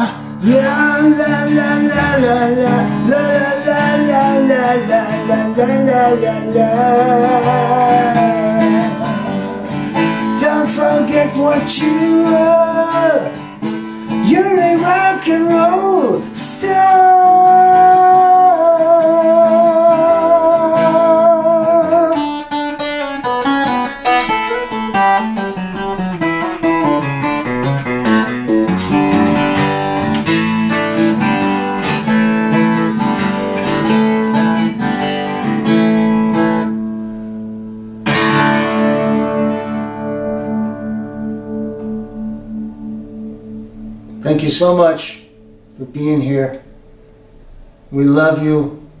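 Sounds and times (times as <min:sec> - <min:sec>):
man singing held note: 0:00.0 - 0:13.4, 0:14.1 - 0:22.4
acoustic guitar strumming: 0:00.0 - 0:49.0.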